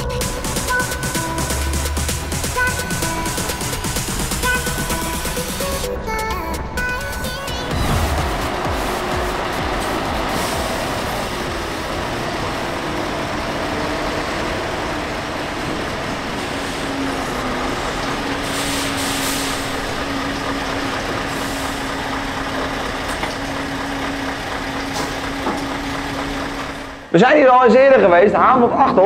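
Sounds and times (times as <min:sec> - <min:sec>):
diesel truck engine running: 0:00.0 - 0:28.2
air hisses: 0:18.4 - 0:19.7.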